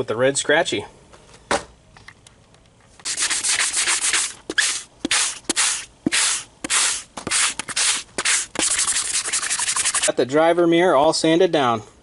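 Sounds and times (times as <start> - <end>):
scuff pad rubbing on plastic: 3.0 - 10.1.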